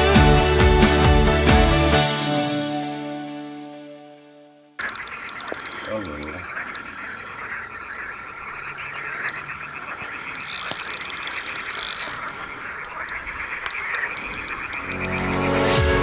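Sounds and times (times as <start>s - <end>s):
fishing reel clicking: 4.8s - 6.8s, 10.2s - 15.8s
frogs croaking: 4.8s - 15.7s.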